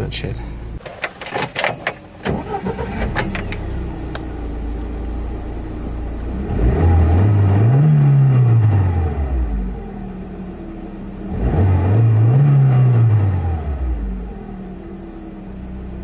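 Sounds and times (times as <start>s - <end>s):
car engine idling: 0.0s - 7.7s, 9.0s - 11.3s
car engine starting: 0.0s - 16.0s
car engine revving: 2.1s - 16.0s.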